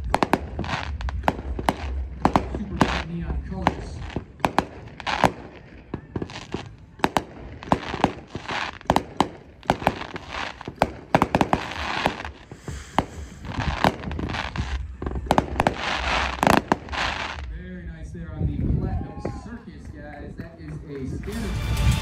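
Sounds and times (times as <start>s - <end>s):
firework hissing: 0.0s - 17.5s
firework bangs: 0.0s - 17.7s.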